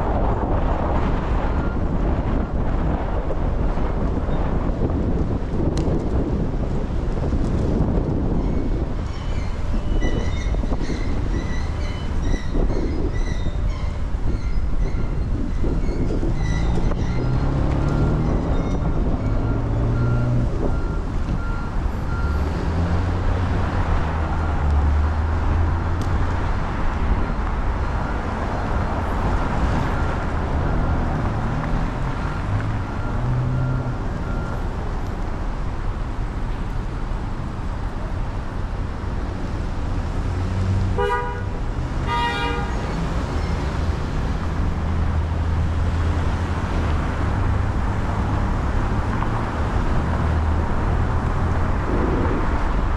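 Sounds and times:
city traffic rumble: 0.0s - 52.9s
car horn toots: 41.0s - 42.9s.

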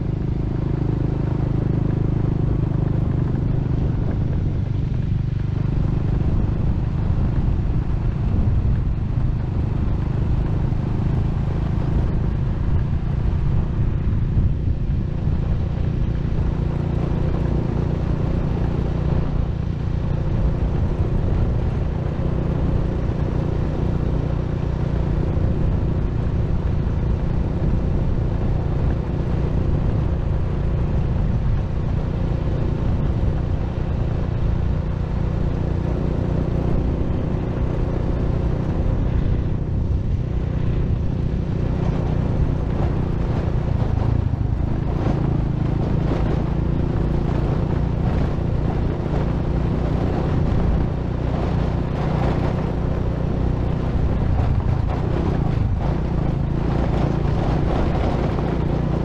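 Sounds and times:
vehicle road noise: 0.0s - 59.0s
wind buffeting microphone: 18.5s - 59.0s.

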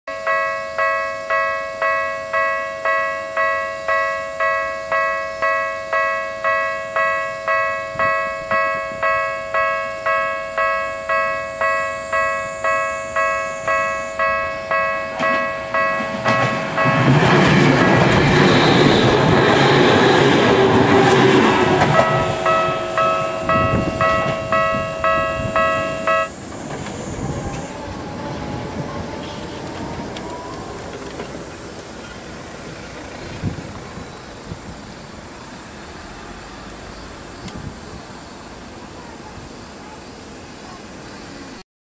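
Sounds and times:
level crossing bell ringing: 0.1s - 17.2s, 22.0s - 26.4s
electric train passing: 0.1s - 41.6s.

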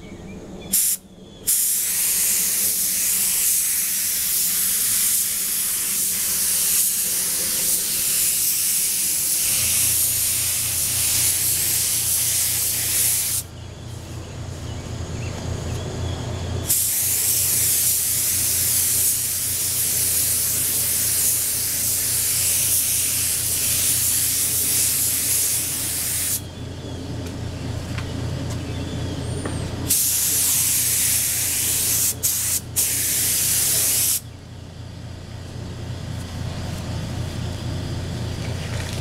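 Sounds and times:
spray gun hissing: 0.7s - 13.5s, 16.7s - 26.5s, 29.9s - 34.2s.

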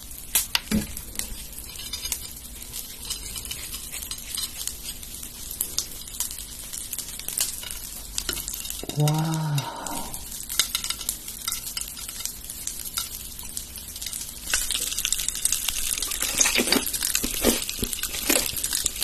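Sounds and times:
popping candy crackling: 0.0s - 19.0s
person exclaiming: 8.8s - 10.3s.

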